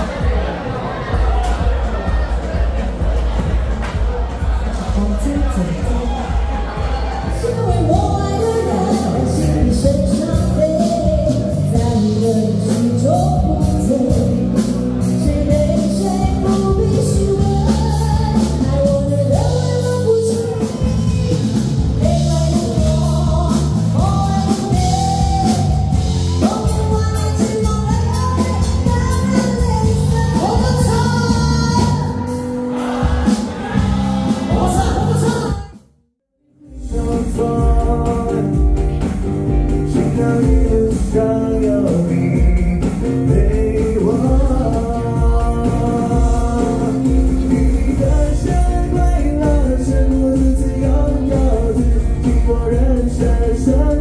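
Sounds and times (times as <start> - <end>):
bass guitar: 0.0 - 35.9, 36.6 - 54.0
drums: 0.0 - 35.9, 36.5 - 54.0
woman singing: 7.2 - 32.4, 39.9 - 54.0.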